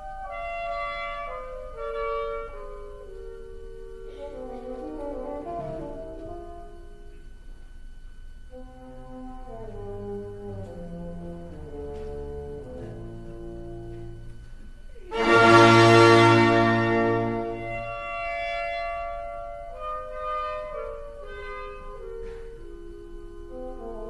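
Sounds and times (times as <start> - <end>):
orchestral music with brass: 0.0 - 3.2, 8.5 - 14.0, 15.1 - 22.1, 23.5 - 24.0.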